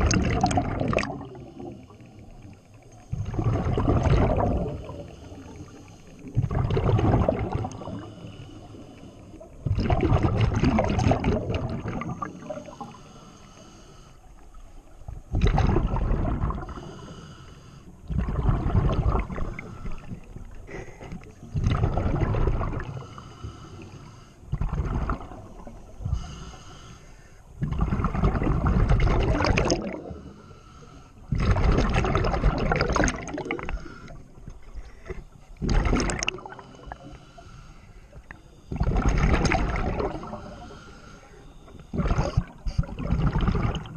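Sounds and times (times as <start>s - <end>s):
exhaled bubbles rushing: 0.0s - 1.8s, 3.1s - 5.1s, 6.2s - 8.0s, 9.6s - 12.6s, 15.3s - 16.8s, 18.1s - 20.2s, 21.5s - 23.0s, 24.5s - 25.8s, 27.6s - 30.2s, 31.3s - 34.0s, 35.6s - 37.0s, 38.7s - 40.6s, 41.9s - 43.9s
diver breathing through regulator: 4.4s - 6.5s, 7.5s - 9.6s, 12.2s - 15.0s, 16.6s - 18.1s, 19.2s - 21.5s, 22.8s - 27.6s, 29.9s - 31.4s, 33.3s - 35.6s, 36.2s - 38.8s, 39.9s - 43.8s.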